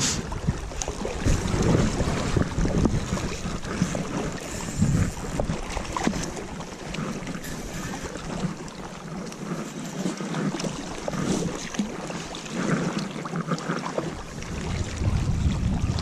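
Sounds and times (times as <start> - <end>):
wind on microphone: 0.0 - 9.6, 13.9 - 16.0
river water lapping at bank: 0.0 - 16.0.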